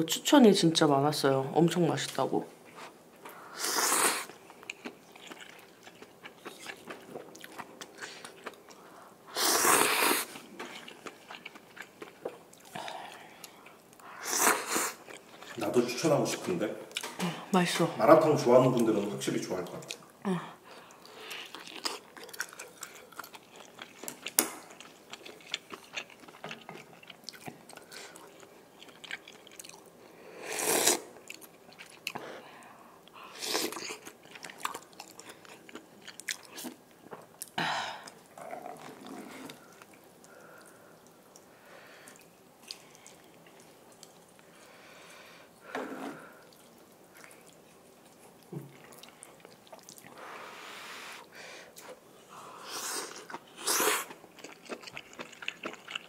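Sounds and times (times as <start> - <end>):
chewing noodles: 4.2 - 8.8, 9.8 - 13.9, 20.7 - 29.9, 46.4 - 50.2, 52.8 - 56.0.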